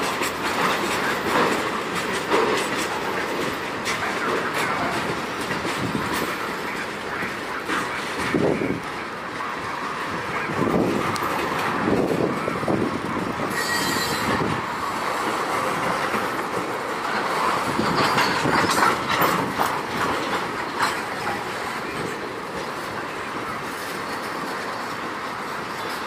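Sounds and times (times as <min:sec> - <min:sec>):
freight train rolling past: 0:00.0 - 0:26.0
wheels knocking over rail joints: 0:10.6 - 0:22.8.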